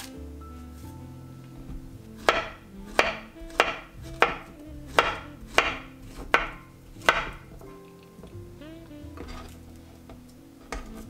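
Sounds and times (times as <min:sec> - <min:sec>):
knife knocking on wooden board: 0:01.7 - 0:08.3.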